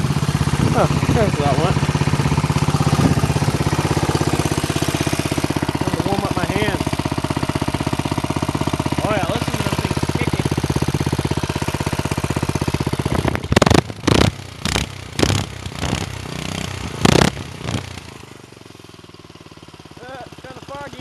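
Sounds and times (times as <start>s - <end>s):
go-kart engine idling: 0.0s - 21.0s
loud knocks and scrapes: 13.0s - 16.1s.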